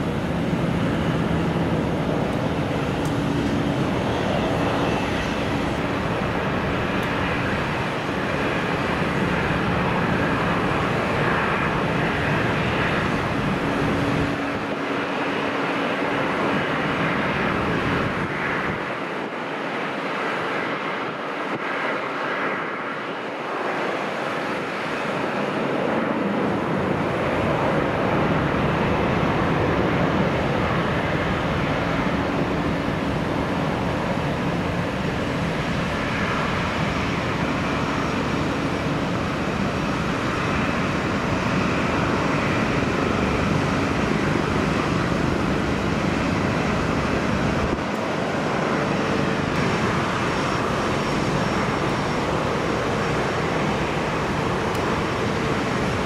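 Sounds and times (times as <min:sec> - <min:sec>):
jet engines landing: 0:00.0 - 0:56.0.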